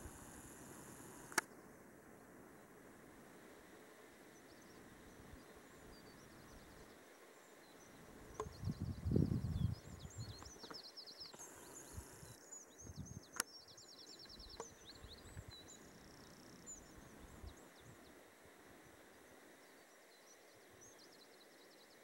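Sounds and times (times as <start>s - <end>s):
sharp click: 1.3s - 1.5s
songbirds chirping and trilling: 4.0s - 22.0s
low rumble on microphone: 8.4s - 10.6s.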